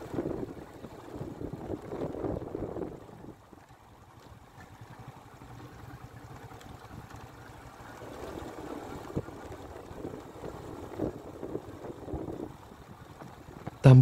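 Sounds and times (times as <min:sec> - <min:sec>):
motorbike engine rumble: 0:00.0 - 0:14.0
wind buffeting microphone: 0:00.0 - 0:14.0.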